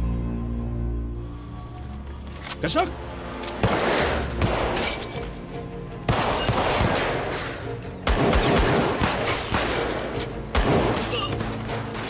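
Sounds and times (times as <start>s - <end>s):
rapid gunshots echoing: 3.6s - 4.8s, 6.1s - 12.0s.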